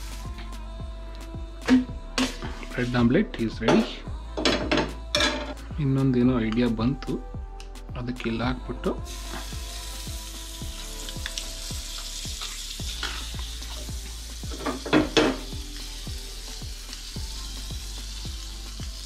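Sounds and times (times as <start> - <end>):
butter sizzling in frying pan: 9.1 - 19.0.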